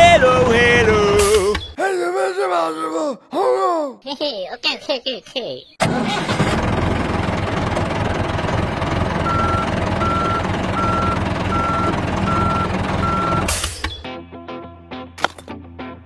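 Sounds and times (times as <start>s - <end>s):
truck engine running: 0.0s - 1.7s, 5.8s - 14.0s
reversing alarm beeping: 9.2s - 14.0s.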